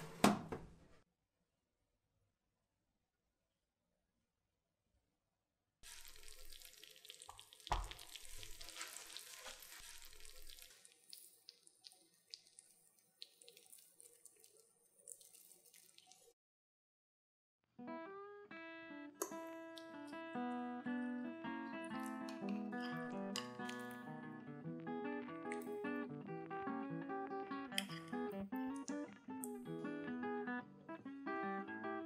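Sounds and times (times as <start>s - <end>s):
gratin sizzling and popping: 5.8s - 16.4s, 21.2s - 24.3s, 25.1s - 30.0s
acoustic guitar music: 17.8s - 32.0s.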